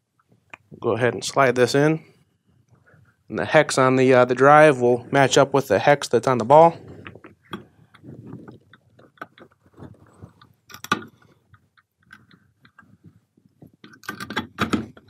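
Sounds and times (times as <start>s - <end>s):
metallic clicks and knocks: 7.0s - 15.0s.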